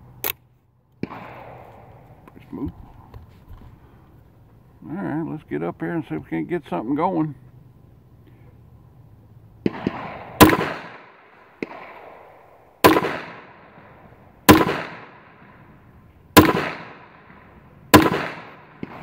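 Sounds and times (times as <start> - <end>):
pistol shots with echo: 1.0 - 2.4, 9.6 - 19.0.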